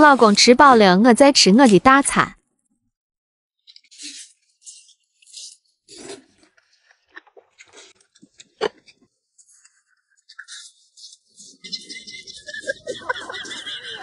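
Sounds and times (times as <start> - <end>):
chewing: 3.6 - 12.6
noodles slurped: 3.7 - 8.9.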